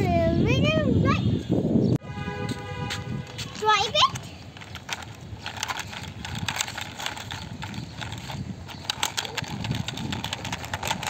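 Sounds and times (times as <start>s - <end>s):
plastic toy clicks and knocks: 3.6s - 11.0s.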